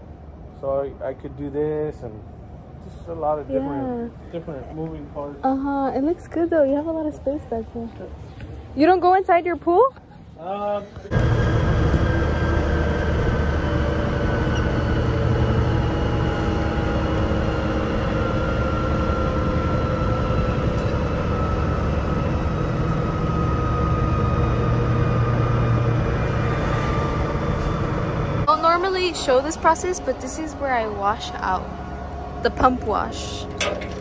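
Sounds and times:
road noise: 0.0 - 34.0
truck diesel engine: 10.6 - 34.0.

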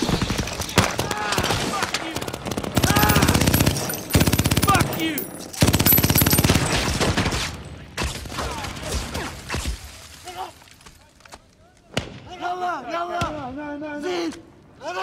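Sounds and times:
automatic gunfire: 0.1 - 7.5.

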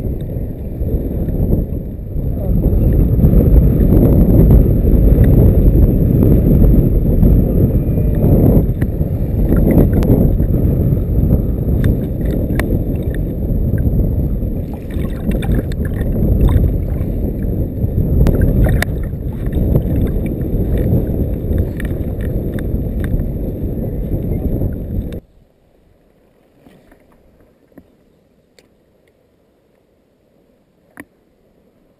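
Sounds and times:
wind buffeting microphone: 0.0 - 25.3.

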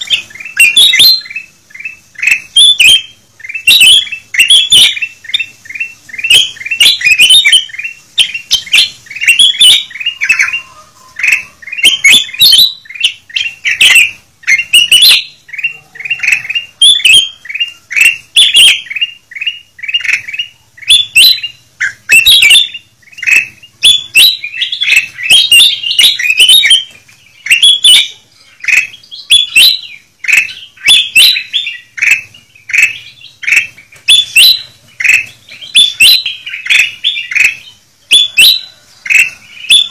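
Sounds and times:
bulbuls chirping: 0.0 - 39.9.

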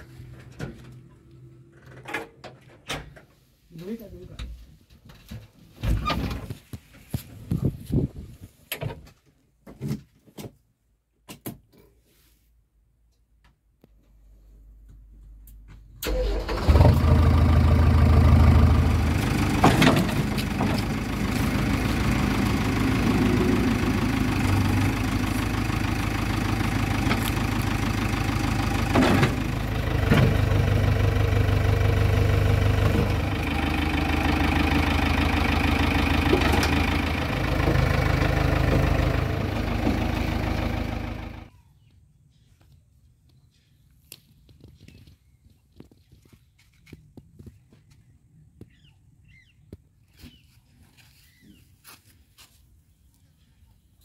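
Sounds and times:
diesel engine starting and running: 0.0 - 2.7, 15.4 - 41.6.

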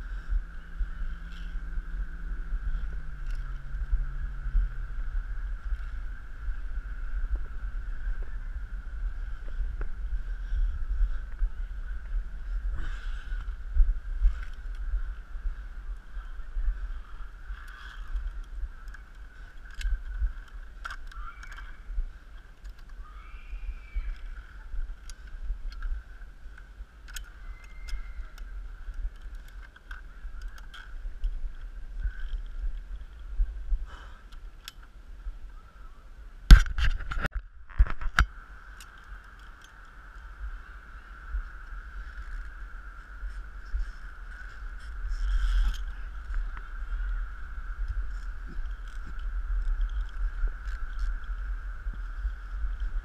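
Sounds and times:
high-pitched hum: 0.0 - 33.8
low rumble: 0.0 - 53.0.

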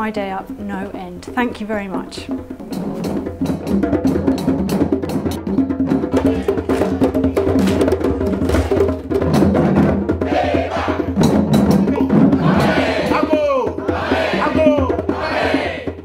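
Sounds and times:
hand drums playing: 0.0 - 16.0
voices singing: 6.0 - 7.6, 10.2 - 16.0.

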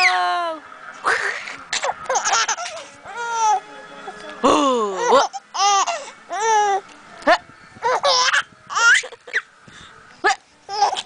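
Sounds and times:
baby laughing: 1.0 - 3.6, 5.0 - 6.8, 7.8 - 9.5, 10.7 - 11.0.

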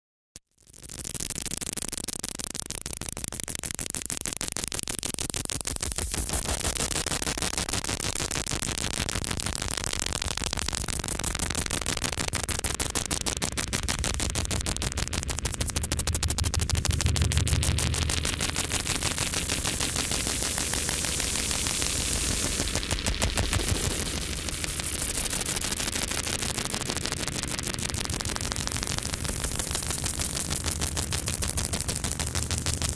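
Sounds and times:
rapid crackling pulses: 0.7 - 32.9
static hiss: 4.8 - 32.9
deep rumble: 12.6 - 32.9.

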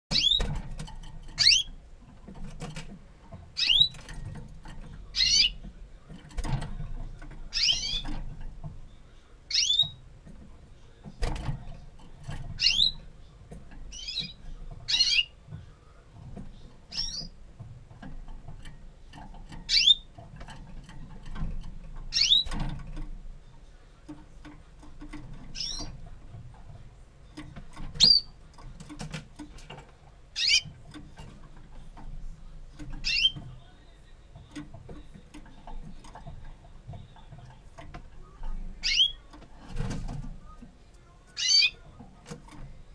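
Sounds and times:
canary chirping call notes: 0.1 - 0.6, 1.4 - 1.8, 3.6 - 4.1, 5.1 - 5.6, 7.5 - 8.1, 9.5 - 10.0, 12.5 - 13.0, 13.9 - 15.4, 16.9 - 17.4, 19.6 - 20.1, 22.1 - 22.7, 25.5 - 26.0, 27.9 - 28.4, 30.3 - 30.8, 33.0 - 33.4, 38.8 - 39.3, 41.4 - 41.8.

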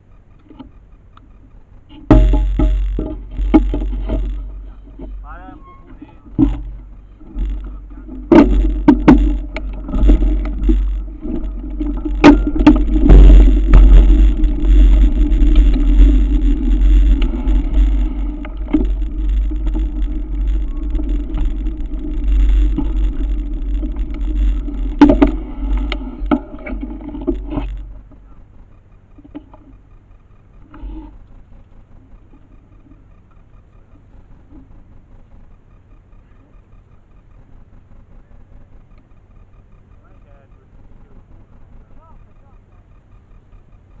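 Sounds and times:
bike knocks and rattles: 1.9 - 28.4
wind rumble on microphone: 1.9 - 28.5
bike tyres on gravel: 2.0 - 28.5.

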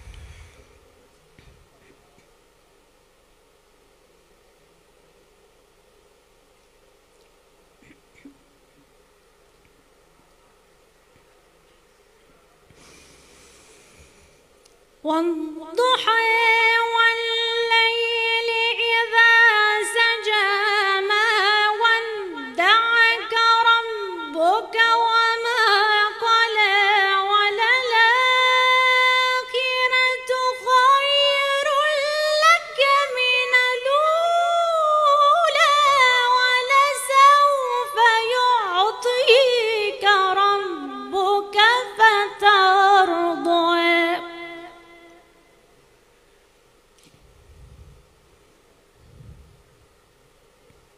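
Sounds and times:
woman reciting melodically: 15.0 - 45.4.

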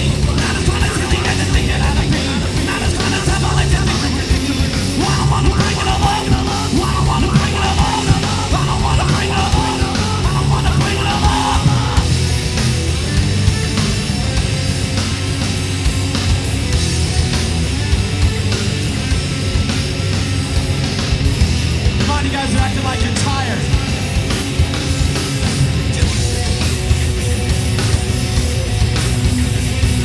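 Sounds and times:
heavy rock band playing: 0.0 - 30.0
singer shouting into microphone: 0.4 - 12.0, 22.0 - 23.8.

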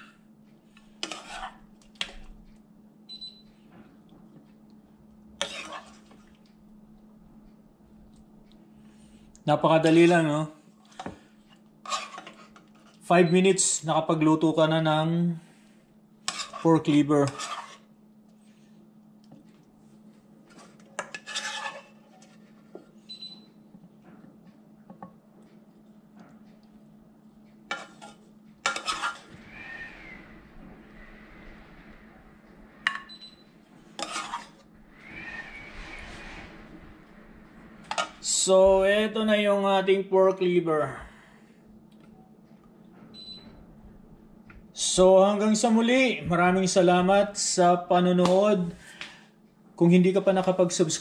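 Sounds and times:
steady low hum: 0.0 - 51.0
plastic spoon scraping ceramic plate: 1.0 - 1.6, 11.8 - 12.6, 16.3 - 17.8, 21.0 - 22.4, 27.7 - 29.3, 34.0 - 34.6.

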